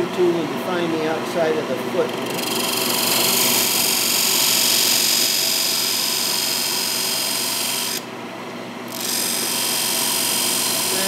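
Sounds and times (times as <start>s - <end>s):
lathe running hum: 0.0s - 11.0s
tool scraping wood on lathe: 2.0s - 8.0s, 8.9s - 11.0s.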